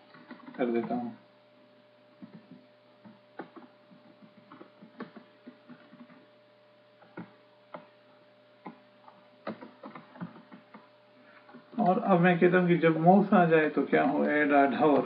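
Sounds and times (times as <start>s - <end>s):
faint electrical hum: 0.0s - 15.0s
keyboard and mouse clicking: 0.1s - 1.0s, 2.2s - 6.2s, 7.0s - 7.9s, 8.6s - 10.8s.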